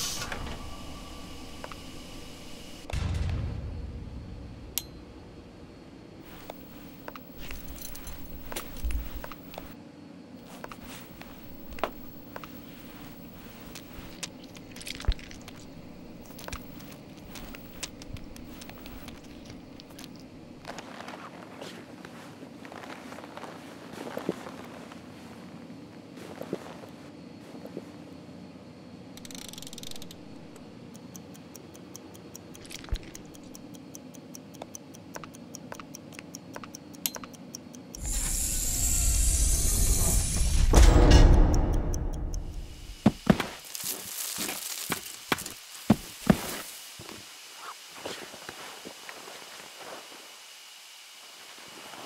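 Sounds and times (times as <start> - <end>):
steady low hum: 0.0 - 44.0
small handling clicks and rustles: 6.3 - 9.8, 10.4 - 25.0, 29.2 - 38.0
clock timer ticking: 29.2 - 38.3, 40.7 - 43.0.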